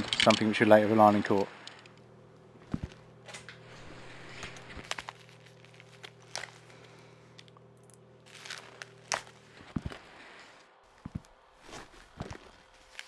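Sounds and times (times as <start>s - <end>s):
faint steady hum: 0.0s - 13.0s
rustling: 8.2s - 13.0s
footsteps: 8.3s - 13.0s.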